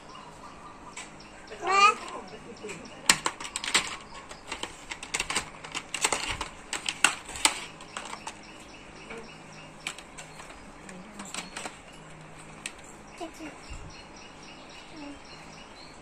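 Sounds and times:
plastic toy vehicles clattering: 1.6s - 13.0s.

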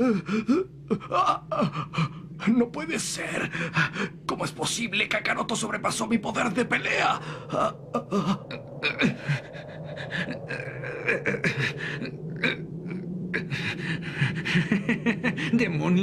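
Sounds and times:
man groaning and gasping in pain: 0.0s - 2.2s, 7.2s - 14.6s.

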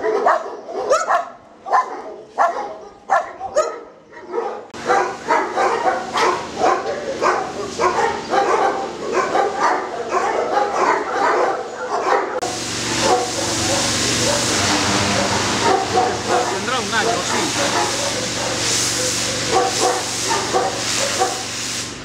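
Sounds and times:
dogs barking: 0.0s - 21.5s.

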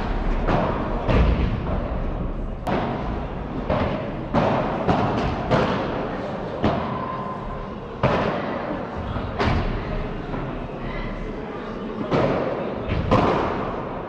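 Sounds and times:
ball hit with rackets: 0.4s - 6.0s.

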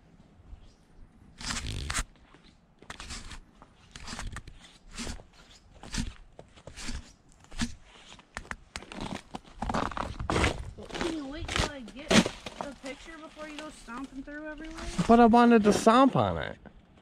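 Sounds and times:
footsteps crunching on snow and leaves: 9.0s - 15.3s.

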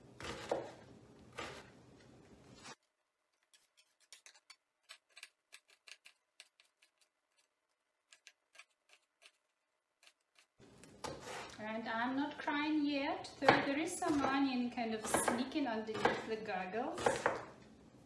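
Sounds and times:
knife chopping on wooden board: 0.2s - 0.8s, 11.0s - 11.5s, 13.4s - 14.4s, 15.0s - 16.3s, 17.0s - 17.5s.

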